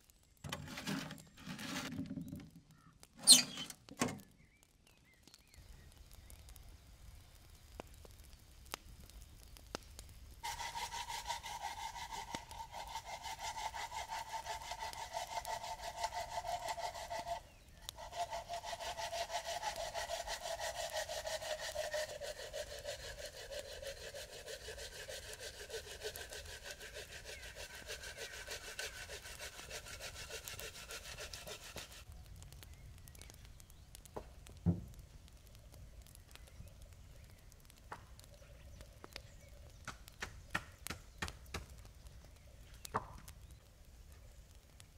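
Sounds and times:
hand saw cutting a log: 0.5s - 2.0s, 10.4s - 32.0s.

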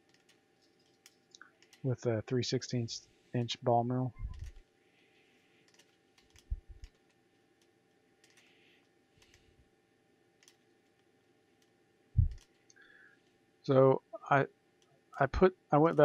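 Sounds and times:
computer clicks: 0.0s - 1.9s, 4.2s - 4.7s, 5.6s - 9.4s, 10.4s - 12.8s
faint hum: 0.0s - 16.0s.

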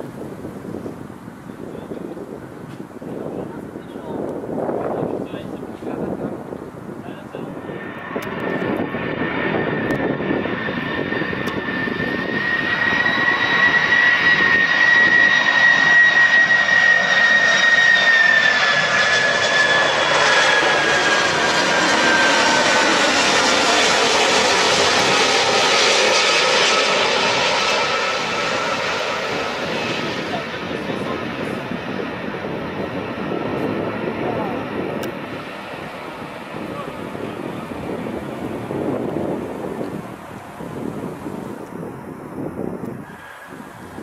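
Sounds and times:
jet engines whining overhead: 0.0s - 44.0s.

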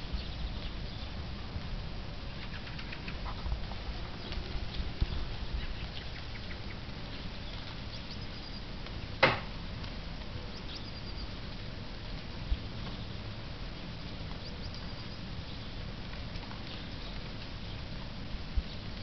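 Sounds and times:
background noise: 0.0s - 19.0s
faint high bird calls: 2.4s - 8.7s, 10.4s - 11.4s
sharp loud knock: 9.2s - 9.5s.

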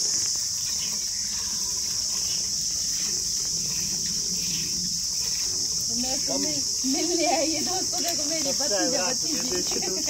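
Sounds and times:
insects chirring: 0.0s - 10.0s.

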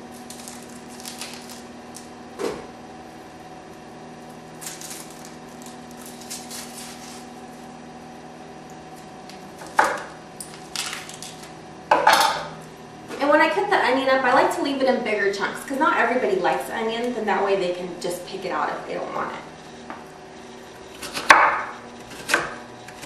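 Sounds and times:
steady low hum: 0.0s - 23.0s
onion skin crackling: 0.1s - 2.1s, 4.6s - 7.4s, 10.4s - 11.5s.

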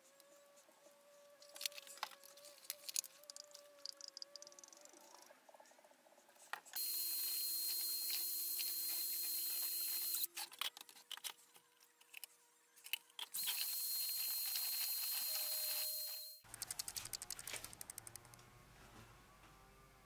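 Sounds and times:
drill with paddle mixer whining: 6.8s - 10.3s, 13.4s - 16.3s.

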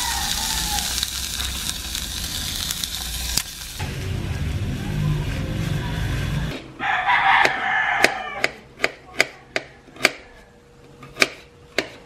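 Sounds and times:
rooster crowing: 0.0s - 1.1s, 6.8s - 8.6s.

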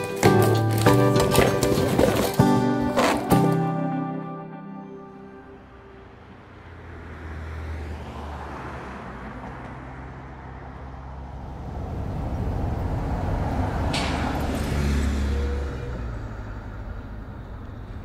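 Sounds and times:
traffic engine drone: 0.0s - 18.0s.

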